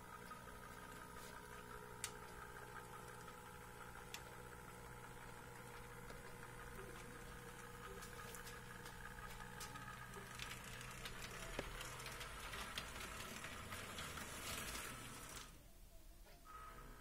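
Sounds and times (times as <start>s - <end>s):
model locomotive whine: 0.0s - 15.7s, 16.4s - 17.0s.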